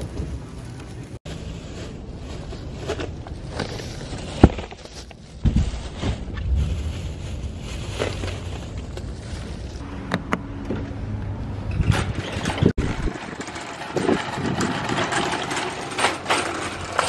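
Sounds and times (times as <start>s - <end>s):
plastic bags rustling: 0.0s - 9.8s.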